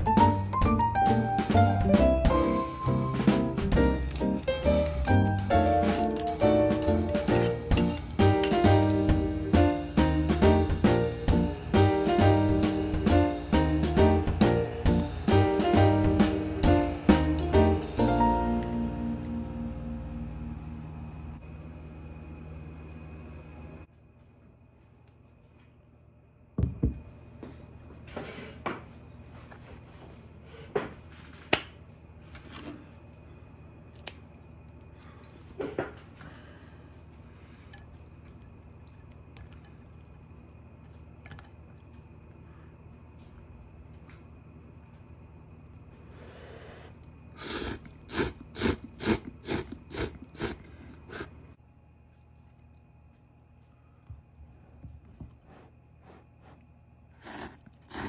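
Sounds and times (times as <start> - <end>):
ceramic bowl knocking on wooden table: 26.6 - 27.0
wooden chopsticks cracking apart: 33.9 - 34.8
person slurping noodles: 46.2 - 51.4, 57.2 - 58.0.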